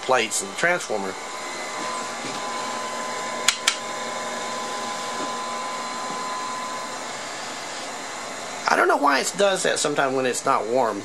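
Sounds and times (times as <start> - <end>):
fan-like rushing hiss: 0.0 - 11.0
sharp clicks: 3.4 - 3.8.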